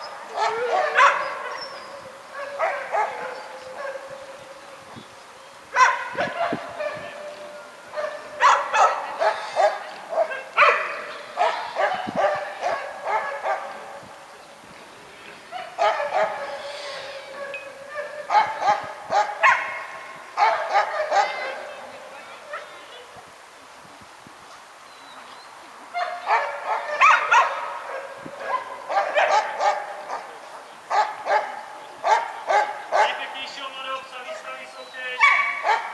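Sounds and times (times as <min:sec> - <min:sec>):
dog barking and yelping: 0:00.3 - 0:04.2, 0:05.8 - 0:07.3, 0:07.9 - 0:13.8, 0:15.6 - 0:21.8, 0:26.0 - 0:33.2, 0:35.2 - 0:35.9.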